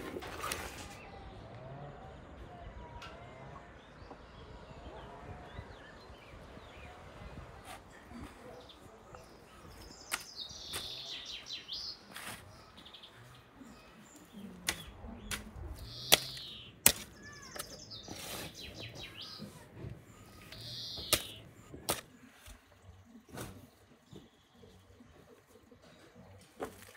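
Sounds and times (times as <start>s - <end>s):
small birds chirping: 0.0s - 26.9s
hoe chopping into soil: 10.0s - 11.2s, 12.1s - 12.6s, 14.6s - 22.6s.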